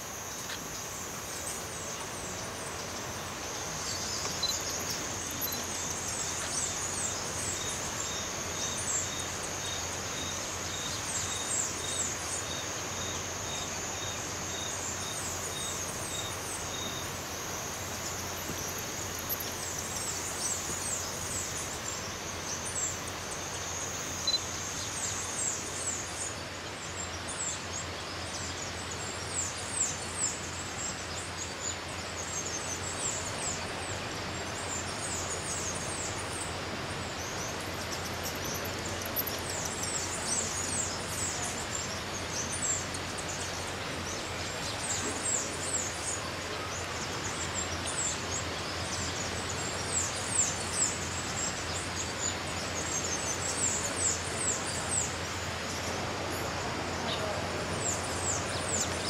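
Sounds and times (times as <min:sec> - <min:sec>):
high insect-like drone: 0:00.0 - 0:26.3
steady hiss: 0:00.0 - 0:59.0.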